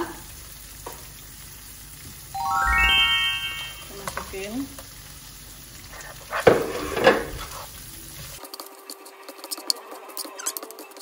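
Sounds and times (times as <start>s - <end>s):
light sizzling: 0.0s - 11.0s
spatula scraping a frying pan: 5.9s - 7.8s.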